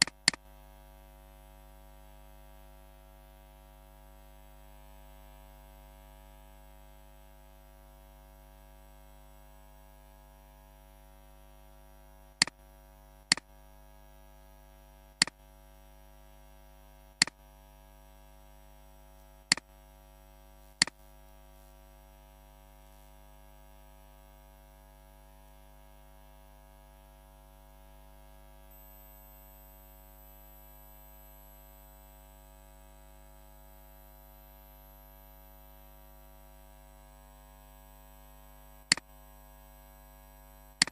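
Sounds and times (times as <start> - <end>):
computer mouse clicks: 0.0 - 0.4
electrical mains hum: 7.5 - 40.9.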